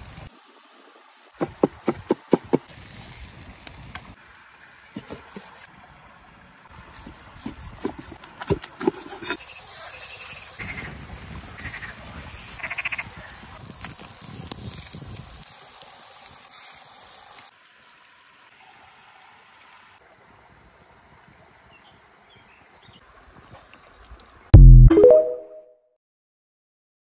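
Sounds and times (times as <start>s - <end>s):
meat searing on hot stone: 2.7s - 4.2s, 9.2s - 17.8s.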